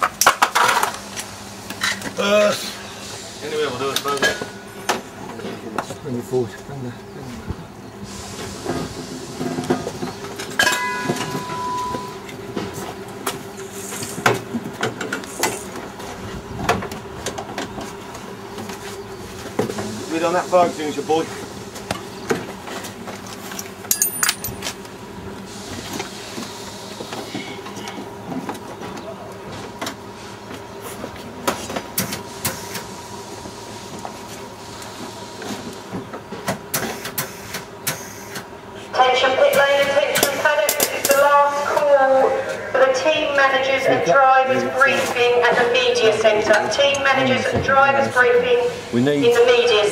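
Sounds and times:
short held tone: 10.6s - 12.2s
clicks and knocks of metal tools: 23.5s - 24.8s.

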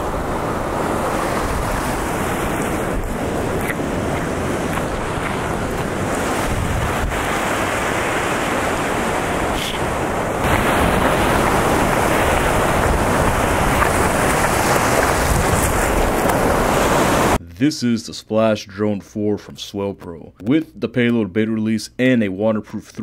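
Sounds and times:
ocean surf washing on beach: 0.0s - 17.4s
wind buffeting microphone: 0.0s - 17.4s.

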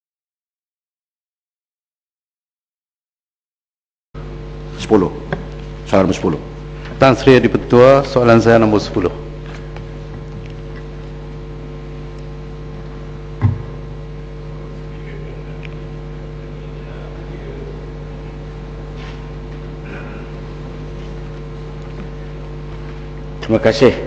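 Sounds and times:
electrical hum: 4.2s - 24.0s
thump: 13.4s - 13.8s.

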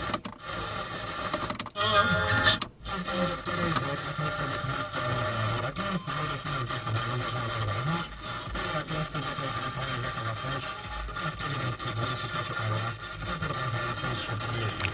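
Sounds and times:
radio hiss: 2.8s - 14.9s
low wavering radio tone: 5.2s - 8.1s, 13.8s - 14.9s.

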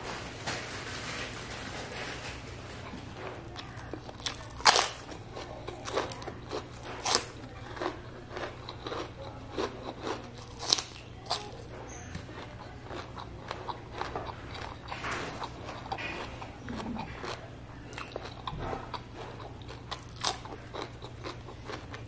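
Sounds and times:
chewing: 2.1s - 22.0s
crunching bites into crisp food: 3.6s - 11.6s.

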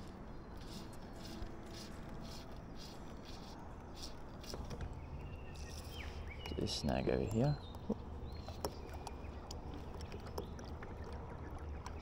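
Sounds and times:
fishing line rasping through rod guides: 0.0s - 4.7s.

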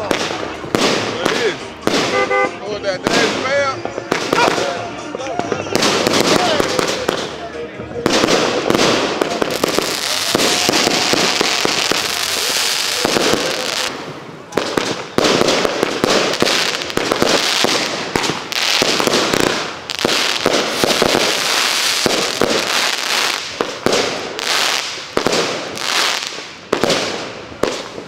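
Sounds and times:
fireworks launch thumps and bursts: 0.0s - 2.3s
fireworks crackling: 0.0s - 28.0s.

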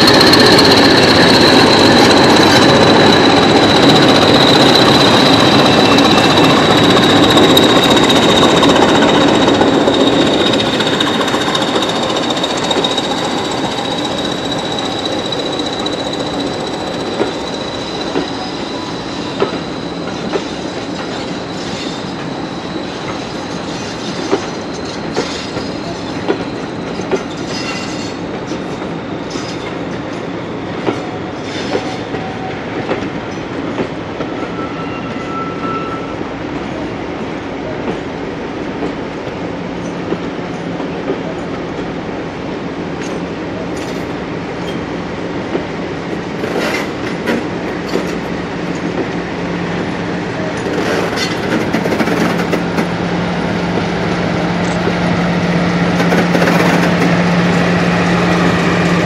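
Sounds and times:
train wheels clicking over rail joints: 0.0s - 22.3s, 23.0s - 34.3s, 43.0s - 53.0s, 55.9s - 57.2s
thin wheel squeal: 0.0s - 24.2s, 34.4s - 36.1s
diesel locomotive engine drone: 0.0s - 59.0s.

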